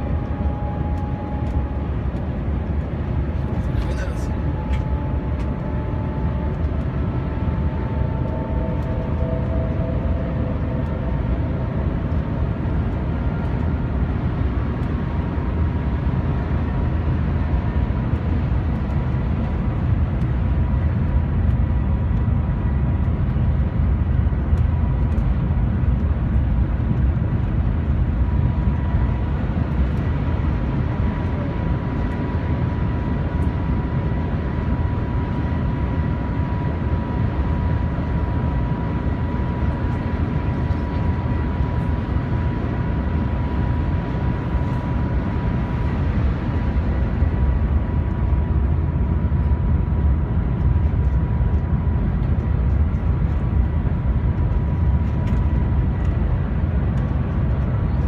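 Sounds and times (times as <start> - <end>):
train cabin air rush and vibration: 0.0 - 58.0
faint high whine: 7.4 - 11.9.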